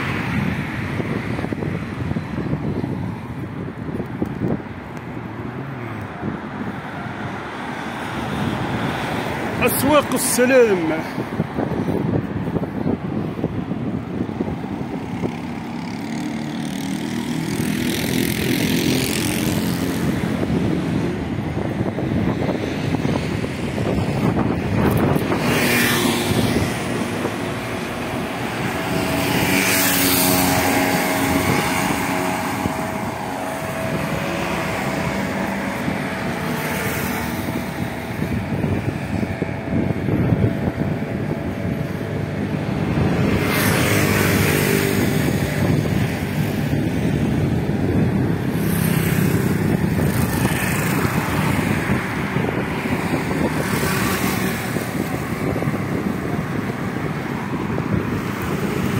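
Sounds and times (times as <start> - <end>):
motorbike and car engines: 0.0 - 58.9
road noise rush: 0.0 - 58.9.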